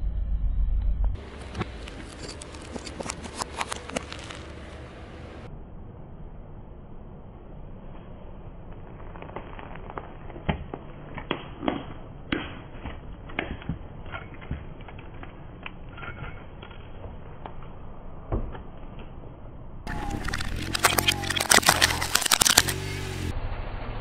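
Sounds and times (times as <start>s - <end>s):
low steady rumble: 0.0s - 11.2s
plastic lighters cracking under tyre: 19.9s - 22.8s.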